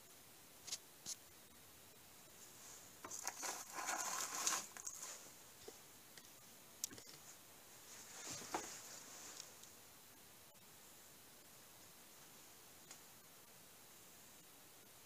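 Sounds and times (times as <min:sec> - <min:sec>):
plastic packaging crinkling: 0:03.0 - 0:05.3.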